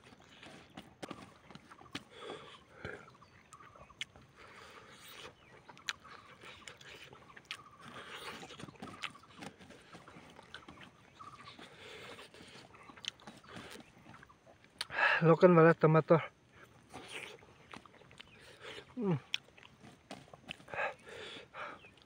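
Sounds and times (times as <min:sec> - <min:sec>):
wet chewing and lip-smacking: 0:00.0 - 0:15.0, 0:16.5 - 0:22.0
mouth clicks: 0:01.9 - 0:15.0.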